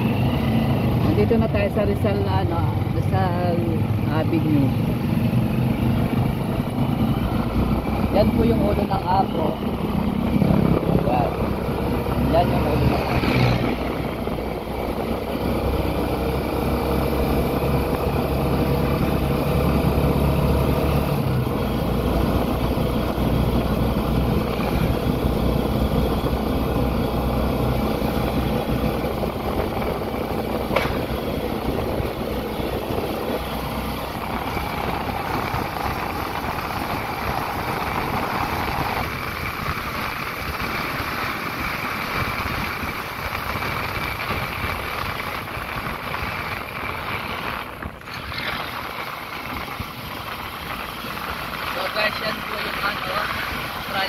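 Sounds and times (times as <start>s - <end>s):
low engine drone: 0.0s - 54.0s
vehicle engine and road noise: 0.0s - 54.0s.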